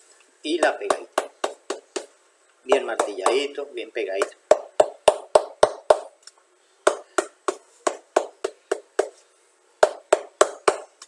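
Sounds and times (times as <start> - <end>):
hammer knocking on shoe sole: 0.6 - 2.1, 2.7 - 3.5, 4.2 - 6.1, 6.9 - 9.2, 9.8 - 10.9.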